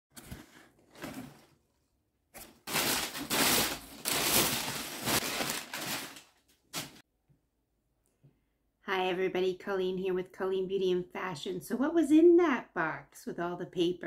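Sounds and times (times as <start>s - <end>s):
packing paper rustling and crackling: 2.4s - 7.0s.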